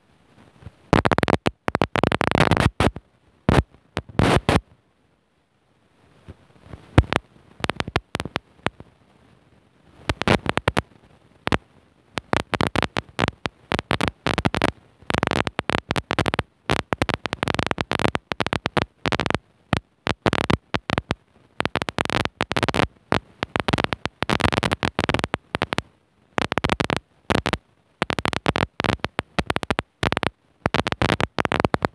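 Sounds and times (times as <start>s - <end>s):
harsh crackling noise: 0.0s - 4.8s, 5.9s - 31.9s.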